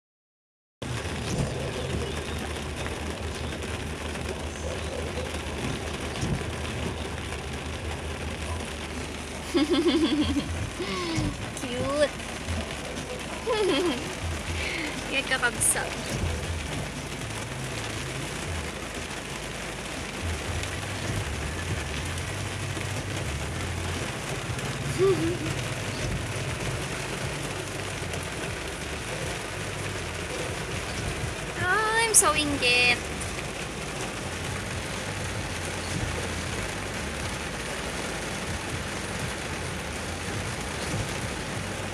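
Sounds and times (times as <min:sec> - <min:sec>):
car engine hum: 0:00.8 - 0:41.9
rain on car roof: 0:00.8 - 0:41.9.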